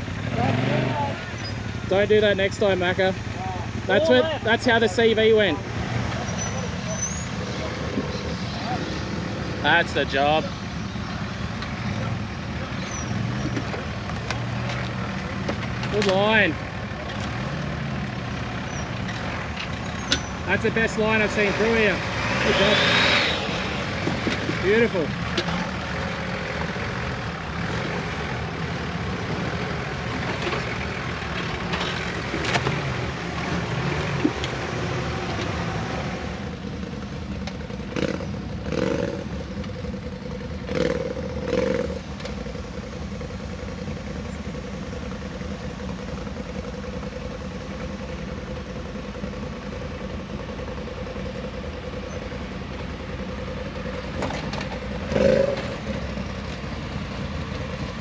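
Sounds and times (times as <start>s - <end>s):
engine revving: 0.0s - 36.7s, 37.8s - 42.5s, 53.7s - 58.0s
off-road vehicle engine under load: 0.0s - 58.0s.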